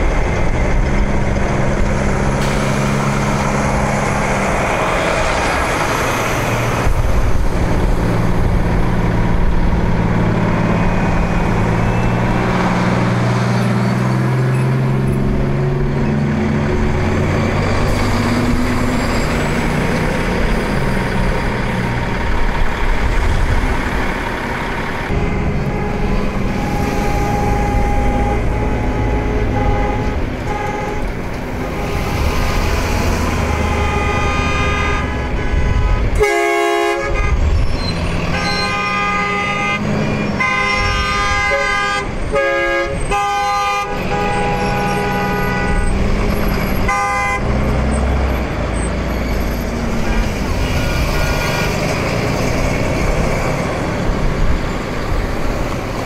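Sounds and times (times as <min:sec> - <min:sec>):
truck engines passing: 0:00.0 - 0:56.0
truck horn blasts: 0:25.1 - 0:48.0.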